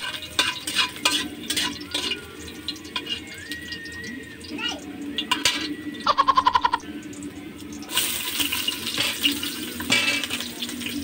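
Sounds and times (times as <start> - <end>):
metal spatula scraping a wok: 0.0 - 3.4, 8.0 - 10.5
onions sizzling in hot oil: 0.0 - 11.0.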